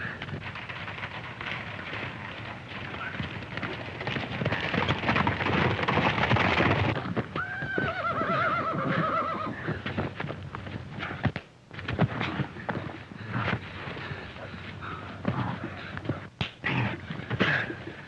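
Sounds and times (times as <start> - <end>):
horse hoofbeats galloping: 0.0 - 18.0
horse whinnying: 7.4 - 9.6.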